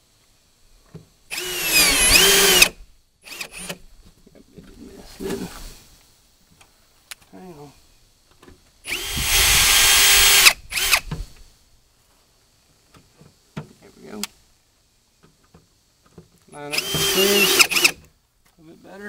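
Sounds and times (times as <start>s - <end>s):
cordless drill driving screws: 1.3s - 3.8s, 8.9s - 11.1s, 16.7s - 18.0s.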